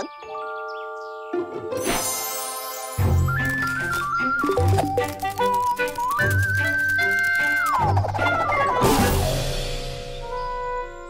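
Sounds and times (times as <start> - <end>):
cartoon background music: 0.0 - 11.0
falling notes run: 3.2 - 9.9.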